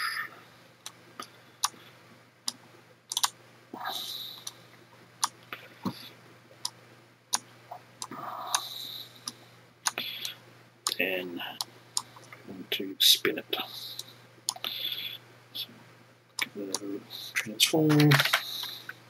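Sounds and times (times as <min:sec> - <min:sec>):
faint low hum: 0:00.0 - 0:19.0
computer mouse clicks: 0:02.5 - 0:03.4.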